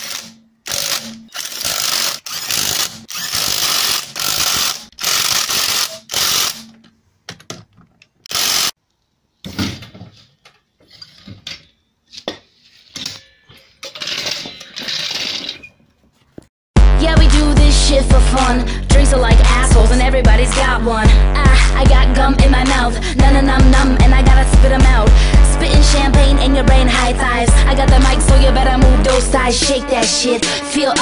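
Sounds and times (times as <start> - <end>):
impact wrench hammering: 0.0 - 6.8, 8.3 - 8.8
clanks and knocks: 9.4 - 16.5.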